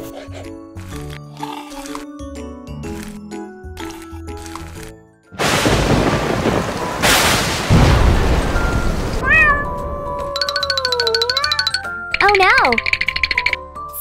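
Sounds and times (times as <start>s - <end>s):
gliding cat-like meows: 9.2s - 10.6s.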